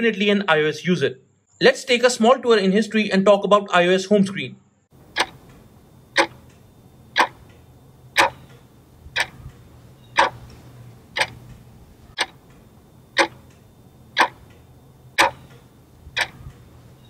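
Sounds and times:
clock ticking: 5.0 - 17.0
faint low hum: 5.0 - 17.0.

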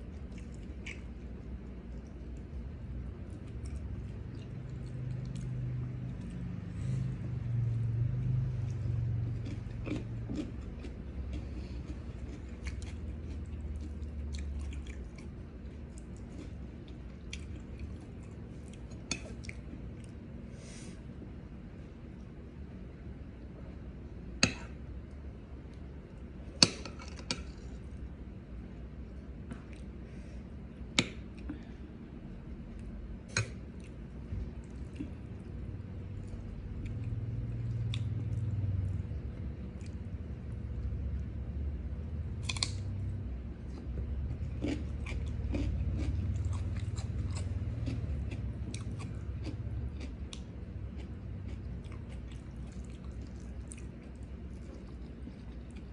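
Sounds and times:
crunchy chewing: 0.0 - 2.6, 8.6 - 20.2, 42.4 - 43.0, 43.6 - 55.9
steady low hum: 0.0 - 55.9.

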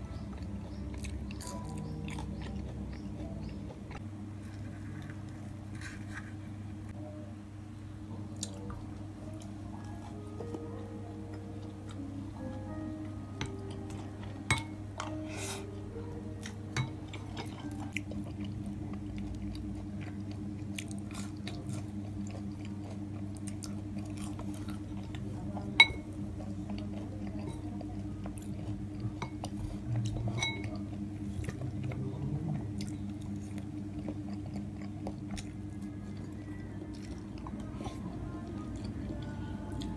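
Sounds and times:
chewing: 0.0 - 6.0, 16.4 - 39.9
steady low hum: 0.0 - 39.9
fork clinking against dishes: 30.3 - 30.8.

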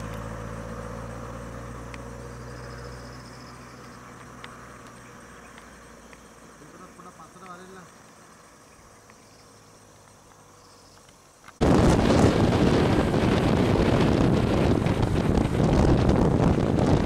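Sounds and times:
road traffic: 0.0 - 17.0
wind buffeting microphone: 11.6 - 17.0.

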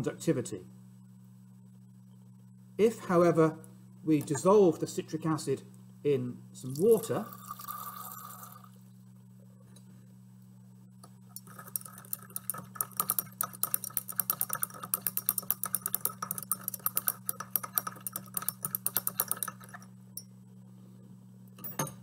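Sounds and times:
water pouring into glass beaker: 6.7 - 8.8
glass rod clinking in beaker: 11.3 - 20.3.

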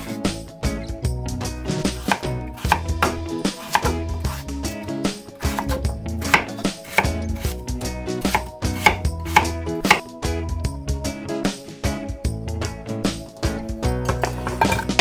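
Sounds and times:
knife chopping on wooden board: 2.0 - 4.4, 5.4 - 7.5, 8.2 - 10.1.

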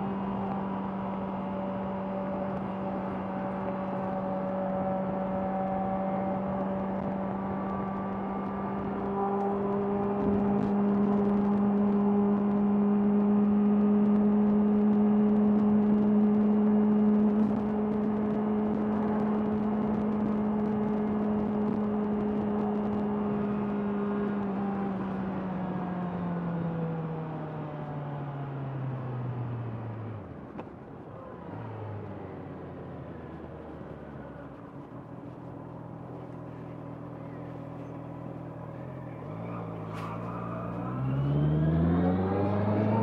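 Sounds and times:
motorcycle engine revving: 36.1 - 43.0.

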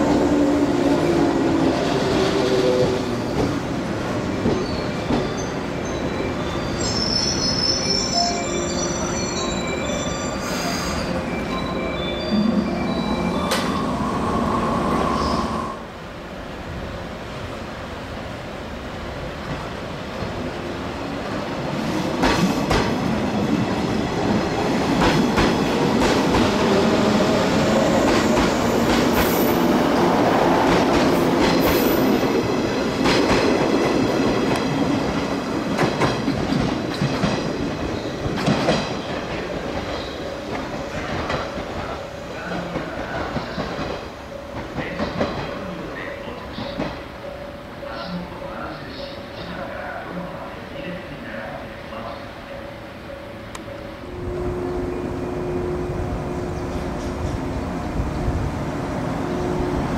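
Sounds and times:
high train squeals: 0.9 - 15.9, 37.2 - 58.4
train wheels clicking over rail joints: 22.2 - 23.0, 35.7 - 41.9.

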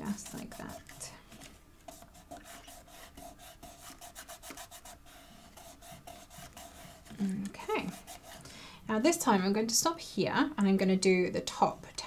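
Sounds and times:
fingers rubbing on cardboard box: 0.0 - 1.1, 1.8 - 8.4.

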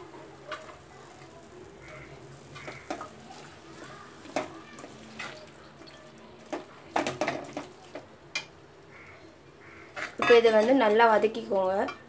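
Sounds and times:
metal spatula scraping a pan: 9.6 - 10.8.

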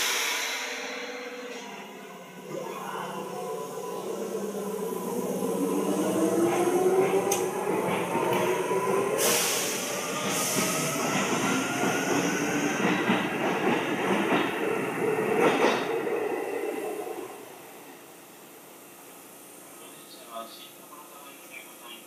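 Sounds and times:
train wheels rolling on rails: 3.7 - 17.6.

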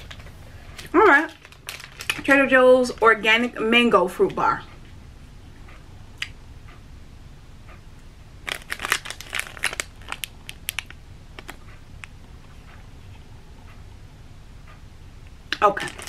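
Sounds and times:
wrapper crinkling: 0.0 - 3.0, 8.4 - 11.6, 15.6 - 16.0.

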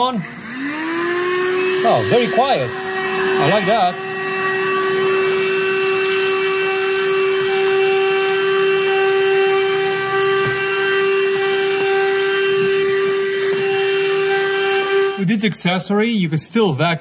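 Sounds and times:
handheld vacuum running: 0.0 - 15.3
vacuum sucking gravel off carpet: 0.3 - 17.0
person speaking: 1.8 - 2.8.

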